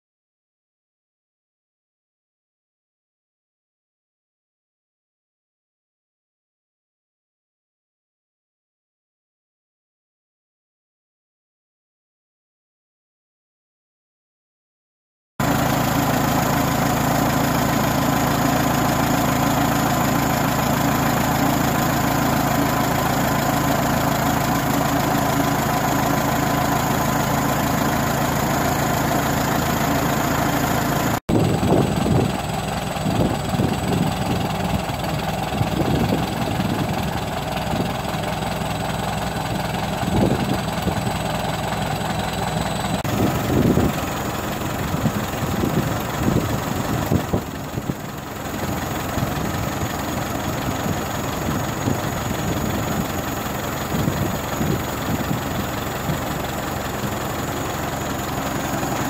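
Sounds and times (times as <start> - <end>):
tractor engine idling: 15.4 - 59.0
low buffeting: 15.5 - 59.0.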